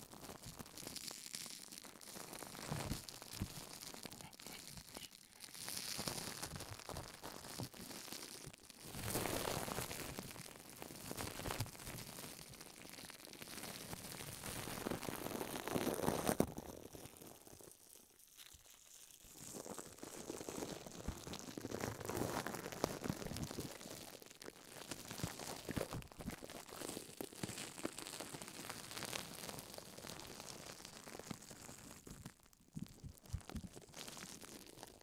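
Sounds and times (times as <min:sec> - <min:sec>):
slime crinkling and crackling: 0:00.0 - 0:35.0.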